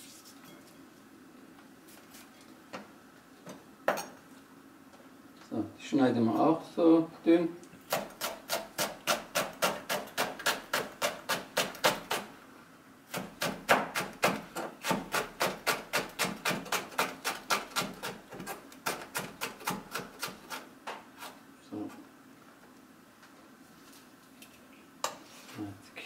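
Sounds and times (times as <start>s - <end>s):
knife chopping on cutting board: 7.9s - 12.3s, 13.1s - 20.6s.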